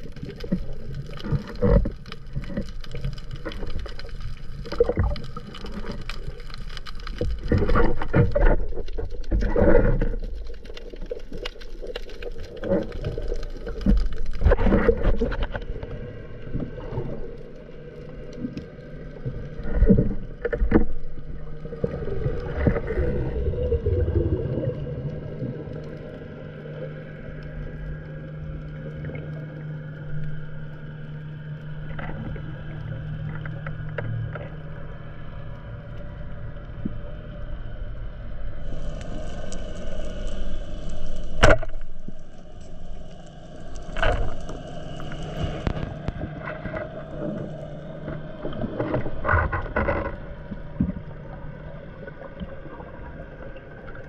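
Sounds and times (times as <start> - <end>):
water sloshing and splashing: 0.0 - 30.4, 38.6 - 54.0
steady low hum: 13.6 - 54.0.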